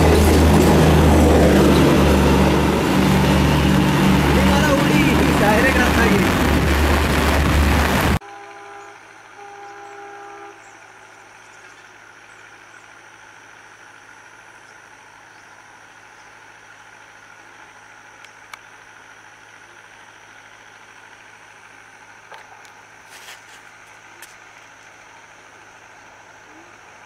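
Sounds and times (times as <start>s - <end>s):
distant locomotive horn: 0.0s - 11.4s.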